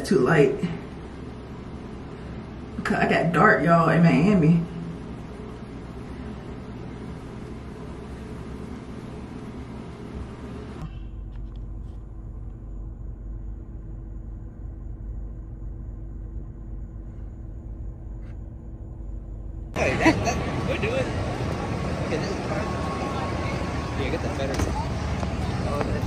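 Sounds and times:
faint steady hum: 0.0 - 26.0
car cabin rumble in traffic: 8.2 - 26.0.

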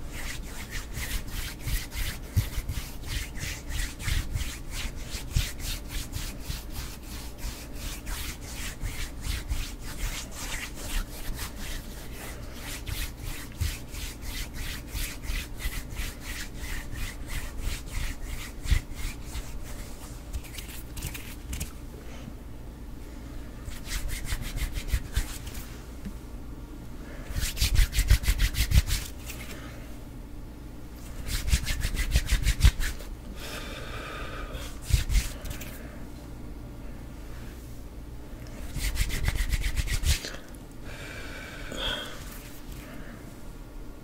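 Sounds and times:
palms rubbing together: 0.0 - 21.8, 23.7 - 25.8, 27.3 - 29.6, 31.1 - 33.1, 34.7 - 35.8, 38.5 - 40.4.

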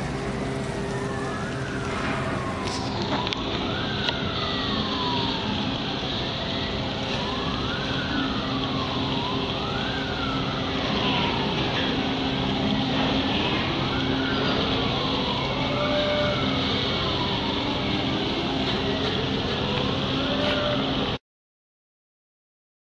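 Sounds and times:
constant hiss: 0.0 - 3.1
low hum: 0.0 - 4.1
wailing siren: 0.0 - 21.2.

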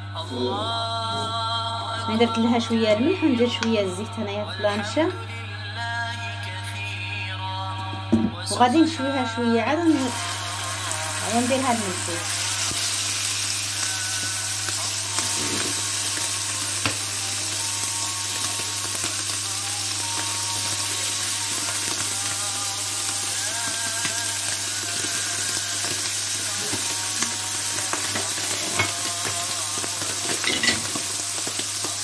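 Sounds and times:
liver sizzling on a griddle: 9.9 - 32.0.

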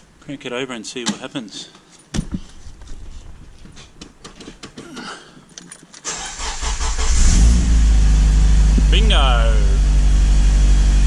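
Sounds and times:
keys jingling in ignition: 5.4 - 6.5
car engine cranking and running: 6.1 - 11.0.

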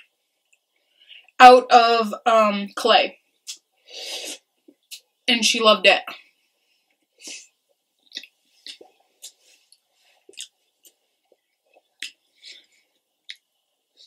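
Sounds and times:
person chewing food: 6.8 - 14.0.

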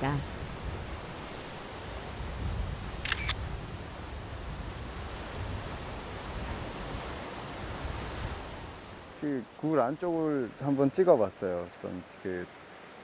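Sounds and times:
camera shutter clicks: 3.0 - 3.5.

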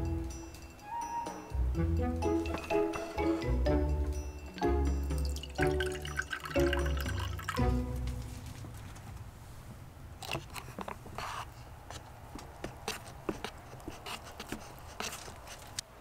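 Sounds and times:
chopsticks stirring noodles: 12.6 - 15.8.

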